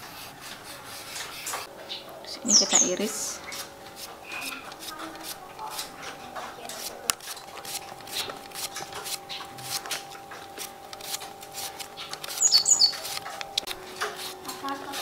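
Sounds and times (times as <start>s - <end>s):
high-pitched chirps: 1.9s - 4.6s, 12.0s - 13.1s
knife slicing cucumber: 3.5s - 5.9s, 6.7s - 10.0s, 10.6s - 15.0s.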